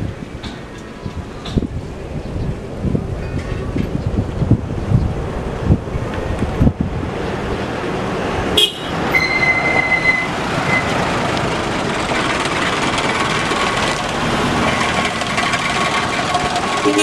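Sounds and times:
wind buffeting microphone: 0.0s - 9.1s
distant jet engines rumbling: 0.0s - 17.0s
thin high whistle: 9.1s - 10.9s.

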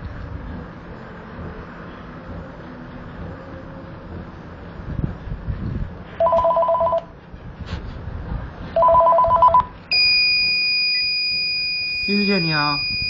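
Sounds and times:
telephone ringing: 6.2s - 7.1s, 8.8s - 9.6s
high-pitched electronic beep: 8.8s - 13.0s.

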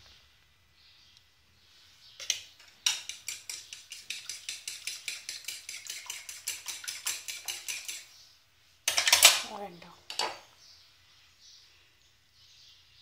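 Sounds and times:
metal utensil clinking against dish: 2.2s - 8.0s, 8.9s - 9.4s.

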